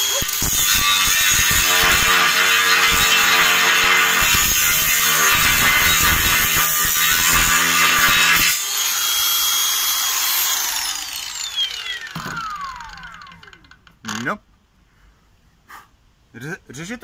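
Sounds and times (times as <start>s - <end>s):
angle grinder cutting steel: 0.0s - 14.3s
grinder disc spinning free whine: 8.6s - 14.2s
grinder motor winding down: 8.6s - 14.2s.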